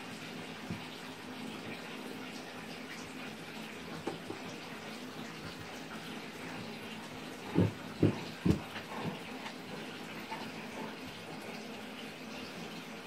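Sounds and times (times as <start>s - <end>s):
dull thumps: 7.4s - 9.3s.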